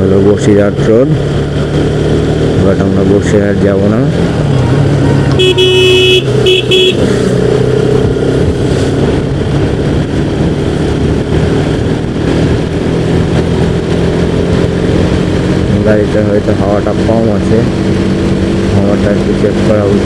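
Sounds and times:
motorcycle engine running: 0.0s - 20.0s
vehicle horn honking: 5.3s - 7.1s.

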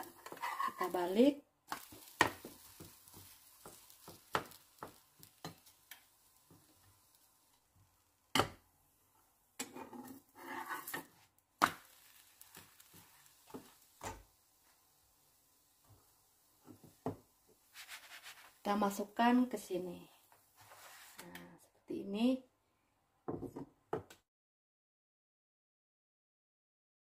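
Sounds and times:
spatula scraping frying pan: 0.0s - 7.5s, 9.6s - 14.8s, 15.9s - 19.0s, 20.4s - 21.2s.

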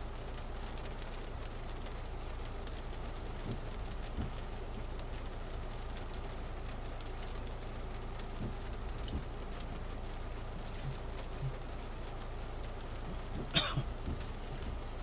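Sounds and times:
rain on car roof: 0.0s - 15.0s
person coughing: 13.5s - 13.9s.

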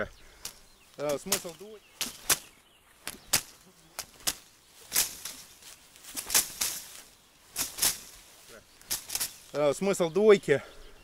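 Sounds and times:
boxing punches snapping: 0.4s - 5.4s.

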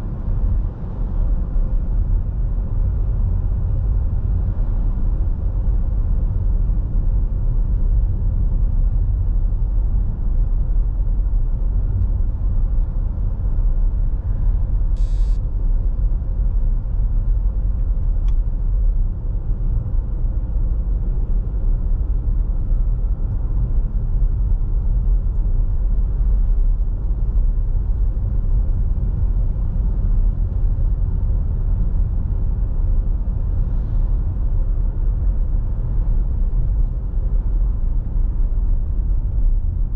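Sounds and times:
car driving on paved road: 0.0s - 39.9s.

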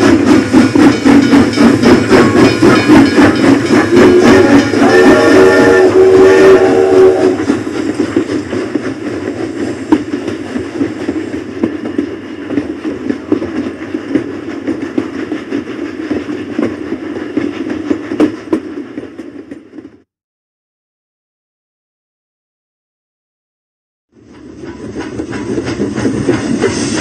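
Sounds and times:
wheels clicking on rails: 0.0s - 20.0s
steam train rumble: 0.0s - 20.1s, 24.1s - 27.0s.

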